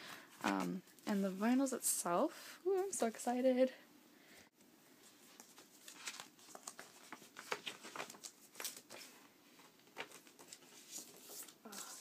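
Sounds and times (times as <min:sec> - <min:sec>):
cardboard record sleeve rustling: 0:05.0 - 0:12.0.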